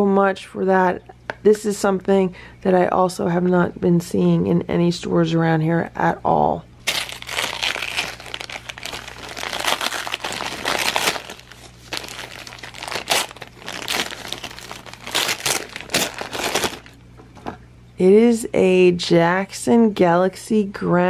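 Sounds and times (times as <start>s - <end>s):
paper tearing: 6.8s - 17.0s
wrapping paper crinkling: 6.8s - 17.0s.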